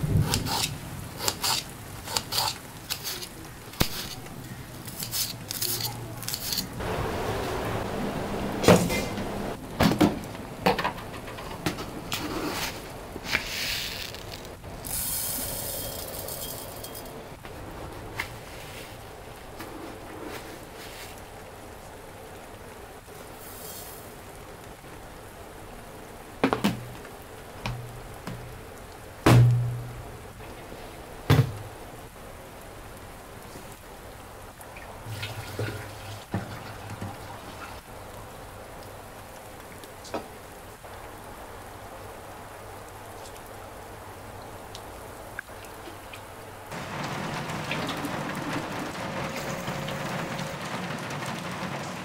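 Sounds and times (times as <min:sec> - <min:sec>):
steady hiss: 0:00.0 - 0:52.0
hiss of rice grains: 0:00.2 - 0:04.3, 0:12.2 - 0:16.6, 0:23.2 - 0:24.2.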